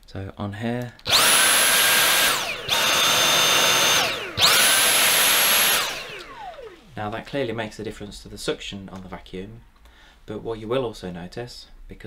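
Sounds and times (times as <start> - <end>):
cordless vacuum motor whining: 1.1 - 7.0.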